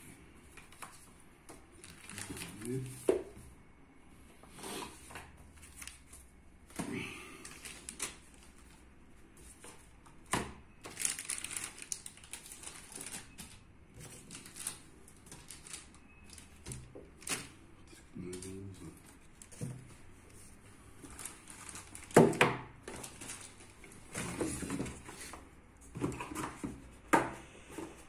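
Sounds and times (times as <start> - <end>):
plastic rustling and crinkling: 0.6 - 3.4, 7.4 - 10.2, 10.8 - 26.9.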